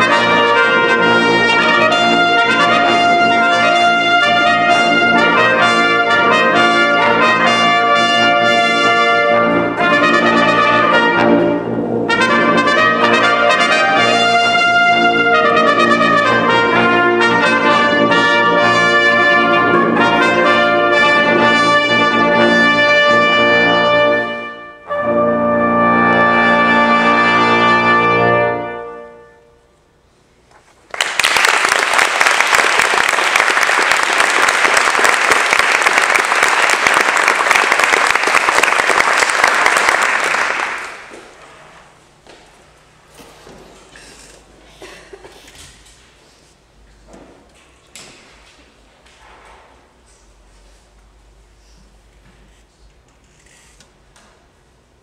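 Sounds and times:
brass quintet playing: 0:00.0 - 0:29.8
audience applauding: 0:30.9 - 0:41.4.

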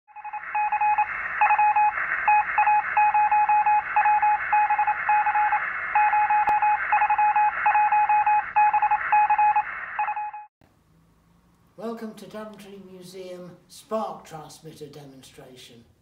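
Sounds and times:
morse code beeps: 0:00.1 - 0:10.5.

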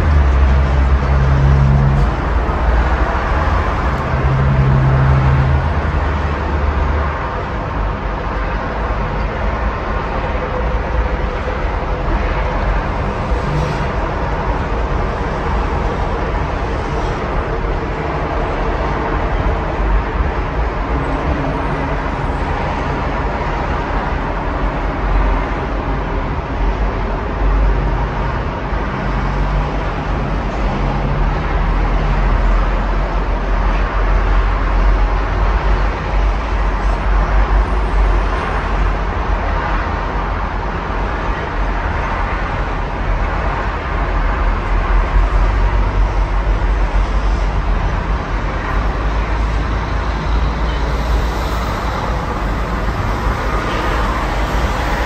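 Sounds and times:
passing engine low hum: 0:00.0 - 0:26.1
road traffic: 0:00.0 - 0:55.0.

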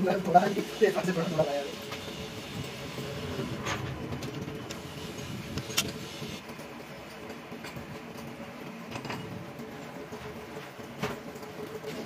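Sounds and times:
mechanical rumble and hum: 0:01.0 - 0:06.4.

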